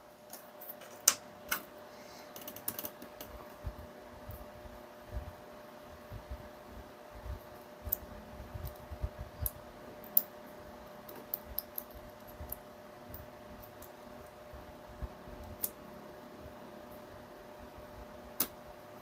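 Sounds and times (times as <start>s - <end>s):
faint steady hum: 0.0s - 19.0s
fingers handling small parts clicking: 11.1s - 13.9s.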